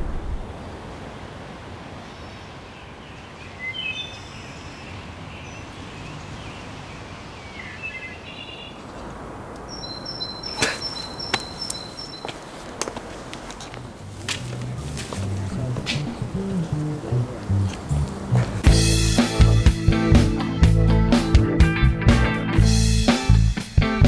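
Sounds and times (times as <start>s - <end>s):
background hiss: 0.0s - 21.4s
birds chirping: 1.9s - 19.8s.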